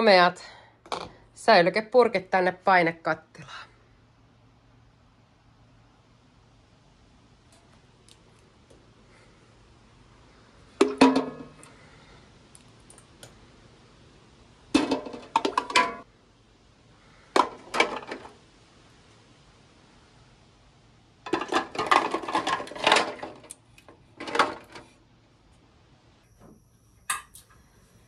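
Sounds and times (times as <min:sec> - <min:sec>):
glass jars clinking in pot: 0:14.8 - 0:16.0.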